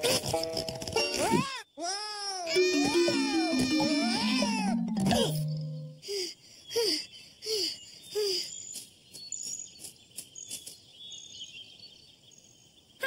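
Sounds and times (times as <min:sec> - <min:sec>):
cartoon squeaks falling in pitch: 0:02.5 - 0:05.9
faint high chirps and ticks: 0:02.6 - 0:13.0.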